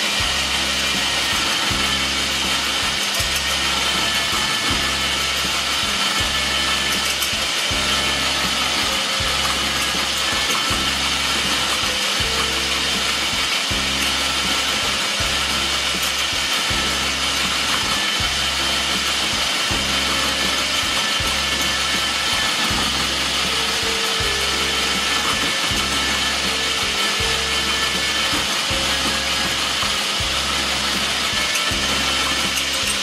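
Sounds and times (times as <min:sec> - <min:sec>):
electric drill grating coconut: 0:00.0 - 0:33.0.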